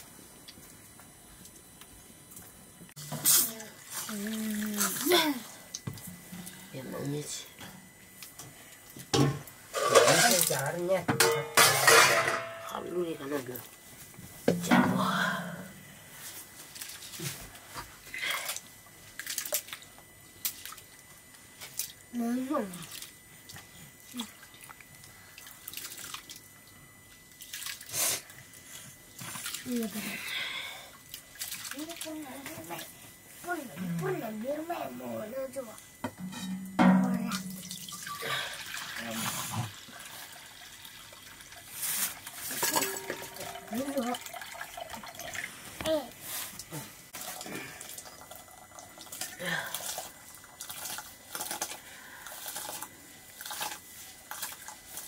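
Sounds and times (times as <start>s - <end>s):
water sloshing and trickling: 3.4s - 7.4s, 18.5s - 28.6s, 29.2s - 30.0s, 30.9s - 33.0s, 37.0s - 45.8s
hand washing rice in water: 18.5s - 21.0s, 21.7s - 26.4s, 27.3s - 28.3s, 31.1s - 33.0s
water poured into a wok: 37.4s - 45.6s.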